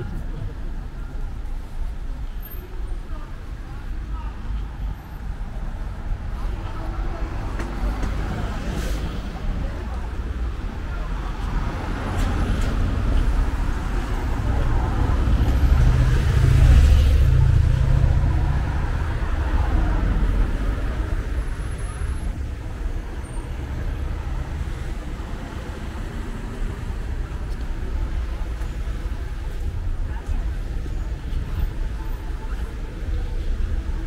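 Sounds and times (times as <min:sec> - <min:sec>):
car engines: 0:00.0 - 0:34.0
vehicle low rumble: 0:00.0 - 0:34.0.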